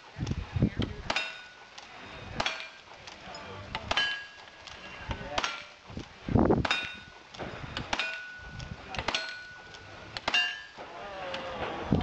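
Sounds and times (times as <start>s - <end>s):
steel target plate clanging: 1.0s - 5.9s, 6.6s - 10.9s.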